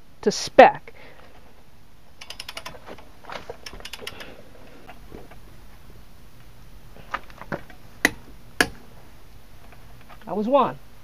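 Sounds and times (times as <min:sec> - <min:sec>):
torque wrench clicking: 0:02.2 - 0:05.0.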